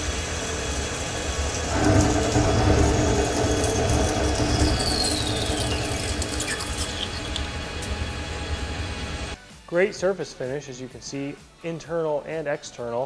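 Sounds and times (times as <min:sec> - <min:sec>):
lathe cutting metal: 0:00.0 - 0:09.4
whine falling in pitch: 0:00.8 - 0:09.4.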